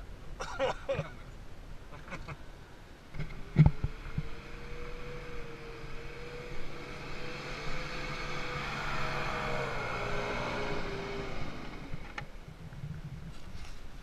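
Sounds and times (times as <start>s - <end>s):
engine running under load: 3.1s - 12.6s.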